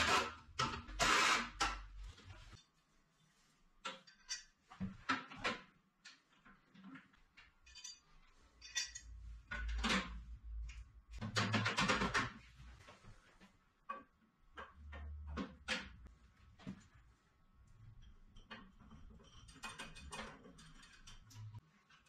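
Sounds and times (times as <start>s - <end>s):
steel brackets clinking and scraping: 7.6s - 10.1s, 18.1s - 21.6s.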